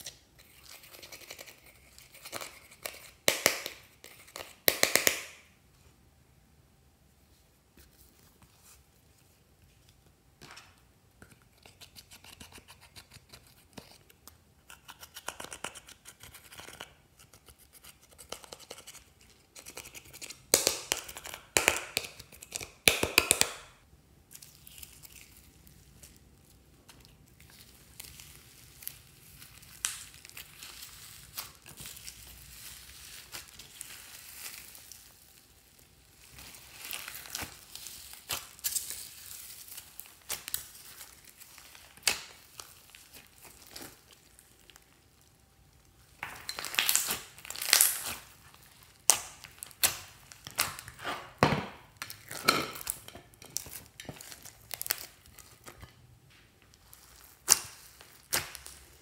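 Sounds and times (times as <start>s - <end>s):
slime crunching and squelching: 24.3s - 51.1s, 52.0s - 55.8s, 56.6s - 59.0s.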